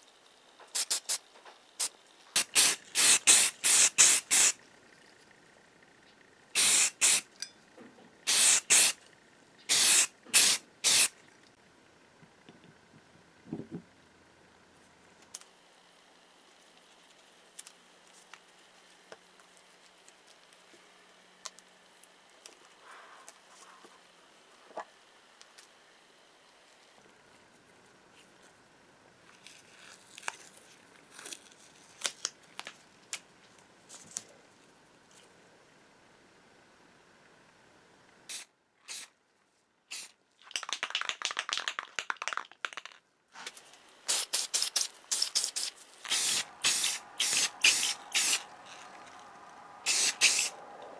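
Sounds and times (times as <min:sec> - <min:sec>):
aerosol spray can hissing: 0:00.7 - 0:01.2, 0:01.8 - 0:04.6, 0:06.6 - 0:07.3, 0:08.3 - 0:09.0, 0:09.7 - 0:11.2, 0:38.3 - 0:39.1, 0:39.9 - 0:40.1, 0:44.1 - 0:48.5, 0:49.8 - 0:50.6
tape peeling with crackling rips: 0:29.3 - 0:33.2.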